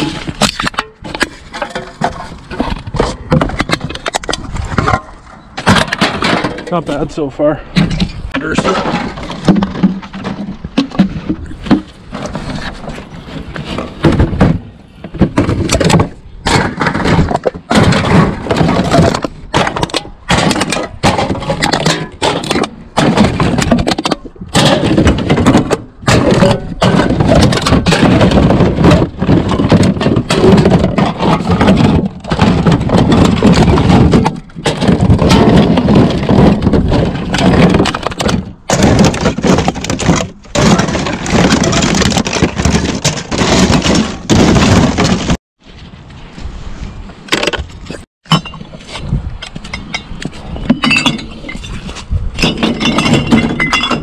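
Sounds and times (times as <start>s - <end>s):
bottles and cans clattering in a bin: 0.0s - 6.9s, 7.8s - 45.4s, 47.3s - 54.0s.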